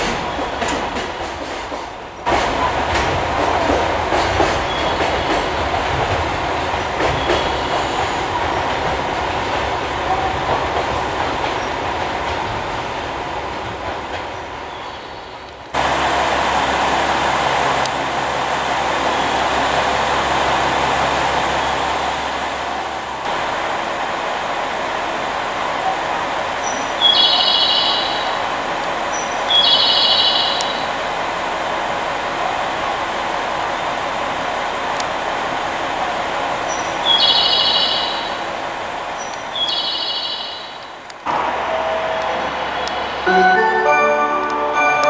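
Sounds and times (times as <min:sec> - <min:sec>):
wheels clattering over rail joints: 0:00.0 - 0:18.2
freight train passing: 0:00.0 - 0:45.0.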